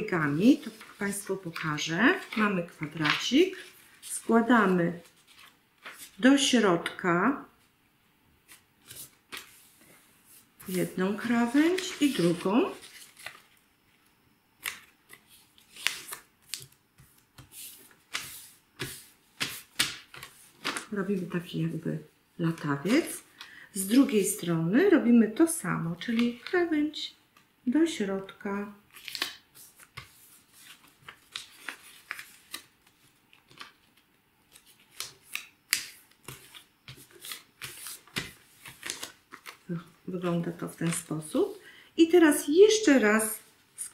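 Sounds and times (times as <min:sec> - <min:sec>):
paper crackling and swishing: 0:00.4 - 0:06.2, 0:08.5 - 0:13.6, 0:34.5 - 0:41.6.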